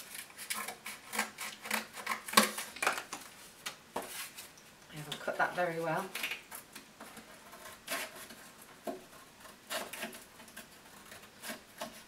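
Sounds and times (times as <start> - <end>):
scissors cutting cardboard: 0.0 - 2.8, 6.1 - 12.0.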